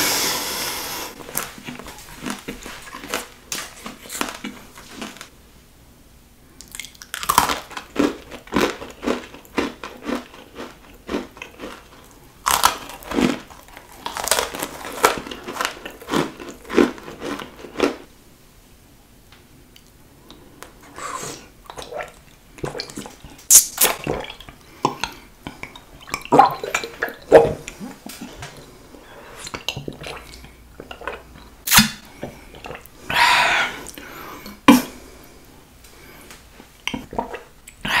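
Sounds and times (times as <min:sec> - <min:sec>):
sipping and swallowing liquid: 0:21.7 - 0:28.7, 0:29.3 - 0:34.7, 0:36.9 - 0:37.9.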